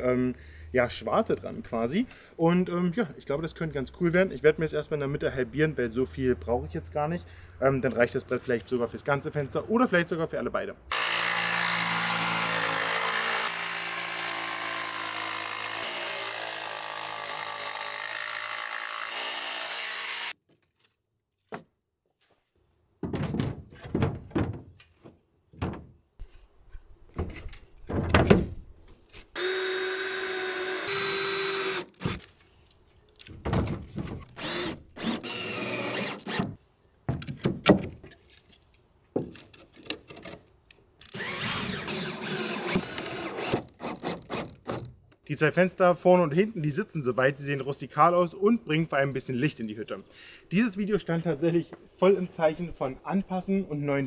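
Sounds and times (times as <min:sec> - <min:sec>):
jigsaw cutting wood: 0:10.9 - 0:20.4, 0:29.4 - 0:32.2, 0:34.4 - 0:36.5, 0:41.1 - 0:44.5
power drill running: 0:10.9 - 0:20.4, 0:29.4 - 0:32.1, 0:34.4 - 0:36.4, 0:41.1 - 0:43.5.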